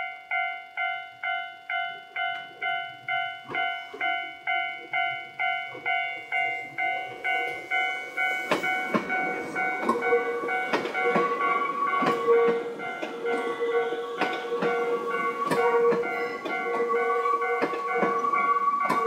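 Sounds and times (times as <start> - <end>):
level crossing warning bell: 0.0 - 19.0
train wheels clattering over rail joints: 5.7 - 19.0.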